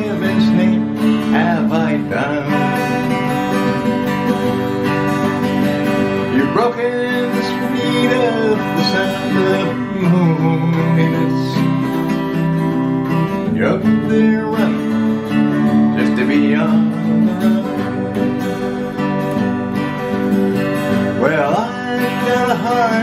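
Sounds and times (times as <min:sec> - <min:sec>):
acoustic guitar strumming: 0:00.0 - 0:23.0.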